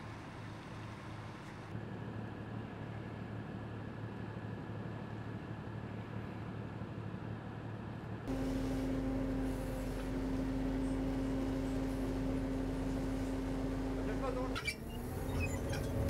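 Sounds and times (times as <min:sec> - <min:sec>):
boat engine drone: 0:08.3 - 0:16.0
low hum: 0:08.3 - 0:16.0.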